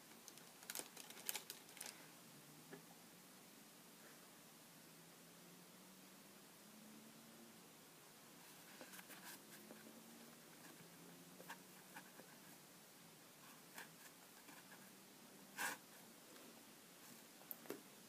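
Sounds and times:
soft rustles of paper: 0.0s - 2.2s, 8.4s - 10.8s.

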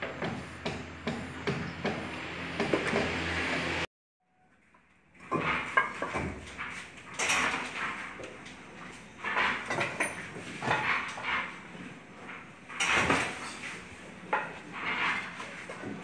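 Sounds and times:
masonry scrapes and clicks: 5.2s - 16.0s.

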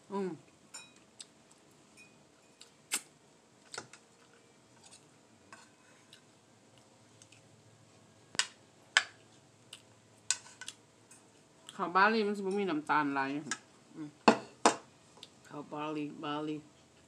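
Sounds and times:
spoon clinking against a bowl: 0.7s - 1.0s.

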